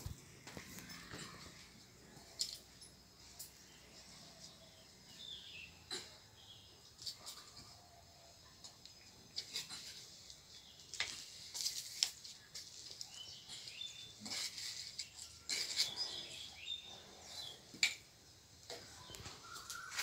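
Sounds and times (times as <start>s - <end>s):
soil worked by hand in pots: 0.0s - 20.0s
bird chirps: 18.8s - 20.0s.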